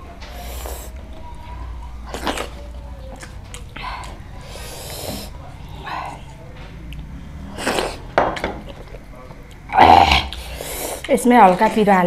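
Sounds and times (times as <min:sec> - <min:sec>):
noisy breath: 0:00.2 - 0:01.0, 0:03.8 - 0:06.5, 0:10.3 - 0:11.1
wet chewing mouth noises: 0:01.8 - 0:12.0.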